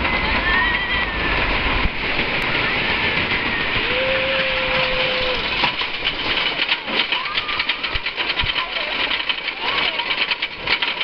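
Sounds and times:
wind rushing over microphone: 0.0s - 6.6s
roller coaster cars rattling: 0.0s - 11.0s
wheels clattering over track: 0.0s - 11.0s
riders screaming: 3.6s - 5.6s.

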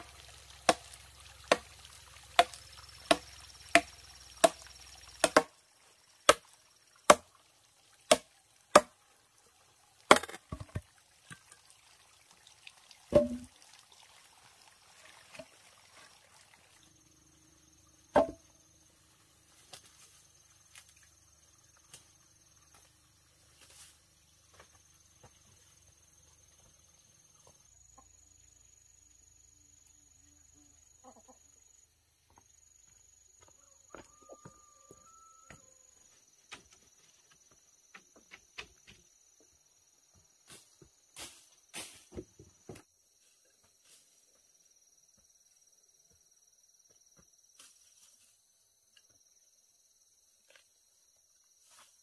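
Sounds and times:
sharp chopping strikes: 5.2s - 5.5s, 8.1s - 8.9s.

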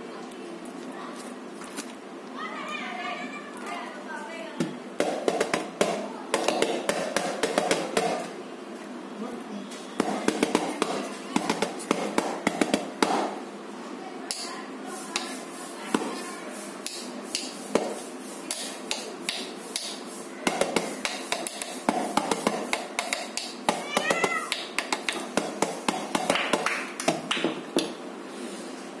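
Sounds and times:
pipe drum struck with stick: 5.0s - 8.2s.

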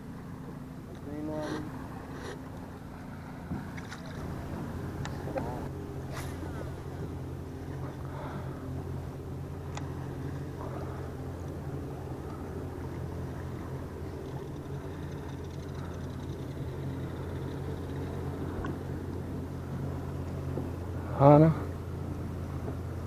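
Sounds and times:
boat motor humming: 0.0s - 23.0s
faint high whine: 0.0s - 23.0s.

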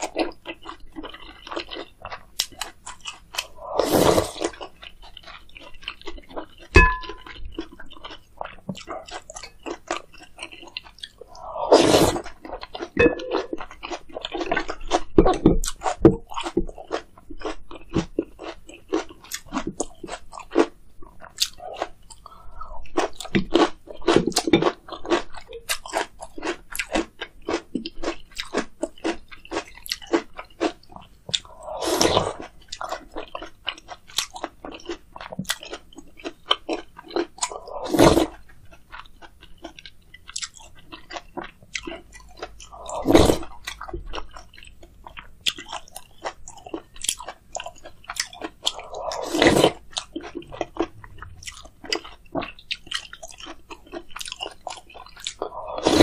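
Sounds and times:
person chewing and crunching: 0.0s - 56.0s.

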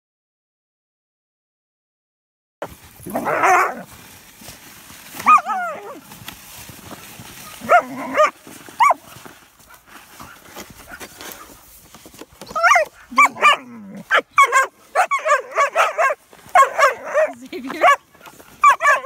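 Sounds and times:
puppies barking and yipping: 3.1s - 3.9s, 5.2s - 6.0s, 7.4s - 9.1s, 12.4s - 19.0s.

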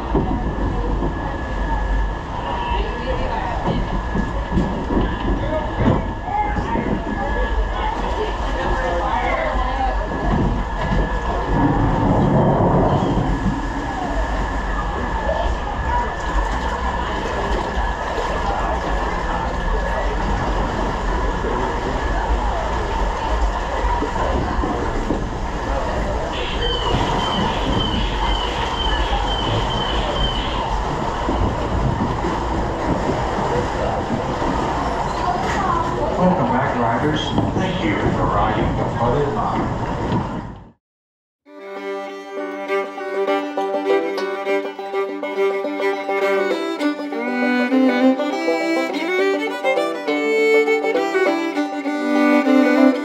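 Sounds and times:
ride boat rumbling: 0.0s - 40.8s, 41.7s - 53.0s
instrumental music led by fiddle: 41.5s - 53.0s.

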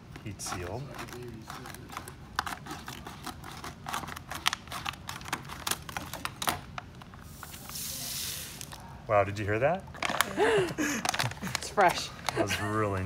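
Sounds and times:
foil crinkling: 0.2s - 8.9s, 9.9s - 13.0s
scissors snipping foil: 0.5s - 6.6s
air hissing into bag: 7.2s - 8.8s.

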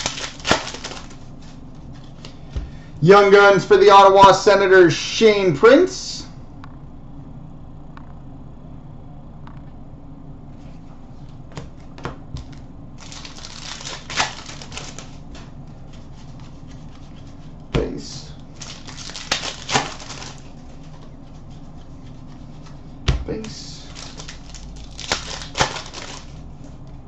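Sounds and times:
wrapper crinkling and tearing: 0.0s - 1.3s, 13.0s - 15.2s, 18.5s - 20.6s, 23.7s - 26.4s
cards riffled and set down: 0.0s - 2.7s, 11.5s - 17.4s, 18.6s - 21.6s, 23.4s - 26.4s.

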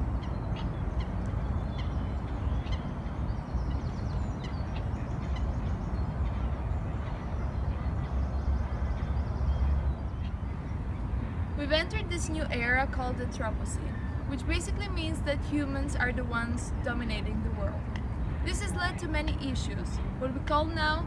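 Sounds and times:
bird calls: 0.0s - 11.2s.

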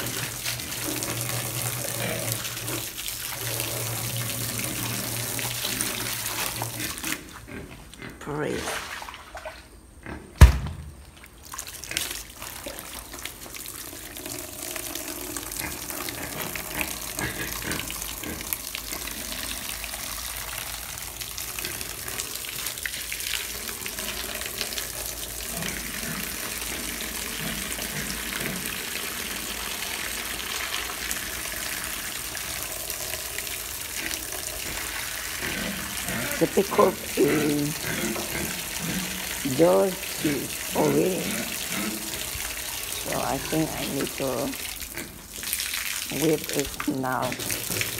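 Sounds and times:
sharp knock: 10.4s - 10.9s
water pouring onto metal pan: 11.5s - 47.9s.

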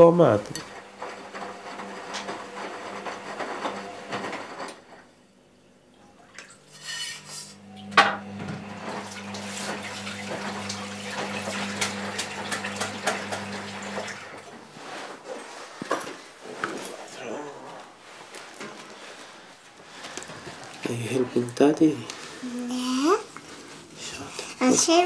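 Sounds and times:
water running in: 0.0s - 14.8s
washing machine hum: 0.0s - 25.0s.

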